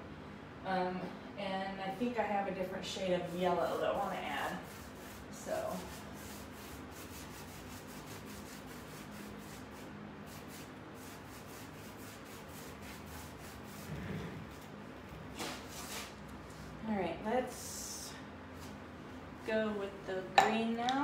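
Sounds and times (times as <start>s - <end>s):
paintbrush scrubbing wood: 3.0s - 14.5s.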